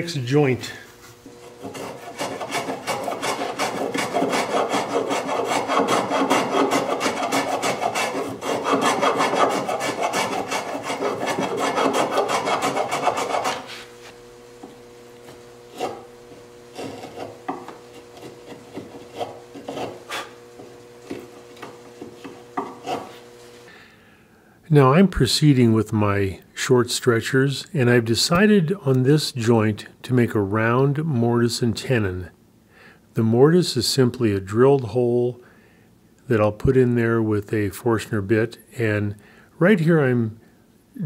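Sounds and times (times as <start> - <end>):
steady low hum: 0.0 - 41.0
hand tool rubbing on wood: 1.0 - 14.2, 15.2 - 23.7
knife scraping wood: 1.2 - 14.2, 15.2 - 23.7.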